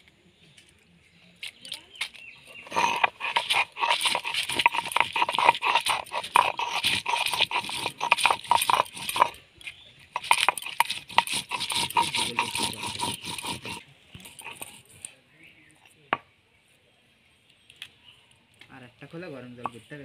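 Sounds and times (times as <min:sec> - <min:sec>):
stone roller scraping grinding stone: 0:01.9 - 0:15.0.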